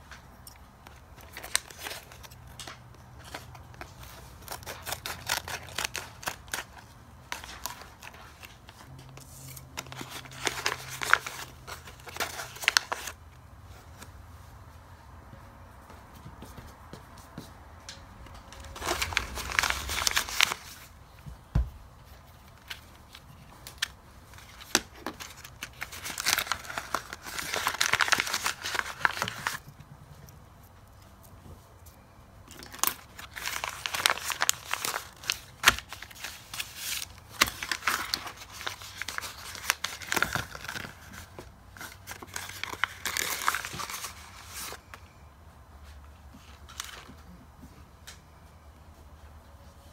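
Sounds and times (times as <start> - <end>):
paper bags crinkling and tearing: 0.8 - 13.2, 18.4 - 21.0, 22.4 - 29.7, 32.5 - 44.9.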